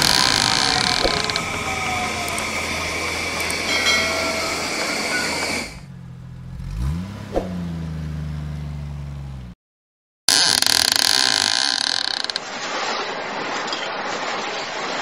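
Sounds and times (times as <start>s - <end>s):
bus engine starting and idling: 0.0s - 9.6s
train passing with squealing: 0.6s - 5.9s.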